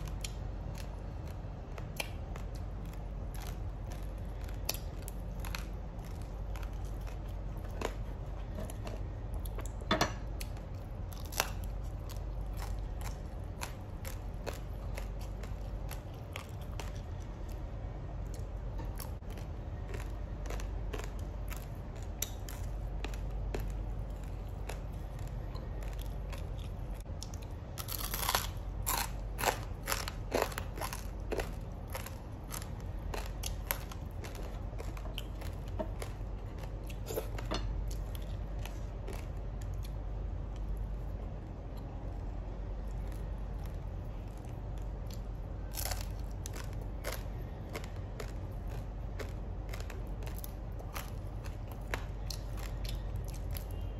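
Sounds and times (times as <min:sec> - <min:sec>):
crunching and chewing crisp food: 0:00.0 - 0:53.9.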